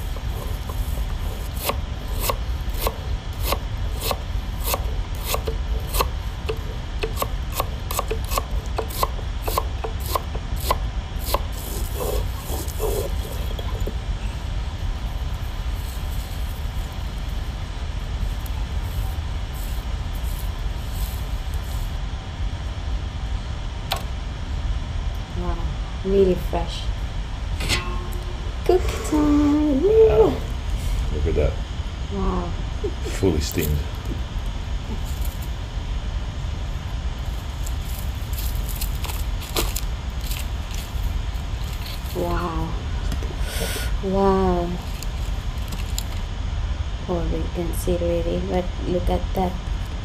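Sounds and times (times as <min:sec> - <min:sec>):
stone roller grinding on stone: 0:00.0 - 0:14.0.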